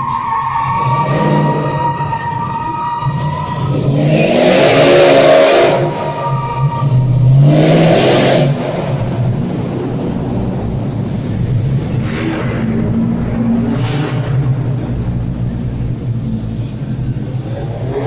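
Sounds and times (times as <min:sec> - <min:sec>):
car engine revving: 0:00.0 - 0:18.0.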